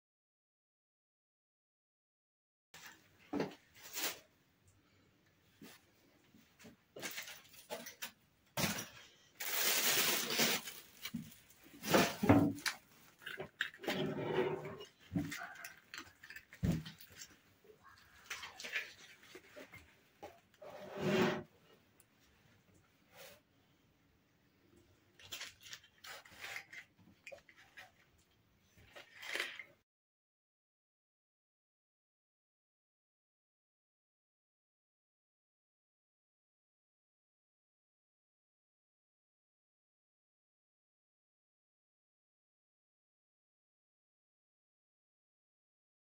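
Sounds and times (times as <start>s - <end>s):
plastic bag and foil crinkling: 7.0s - 13.8s, 15.0s - 19.8s, 25.2s - 28.1s, 28.8s - 29.6s.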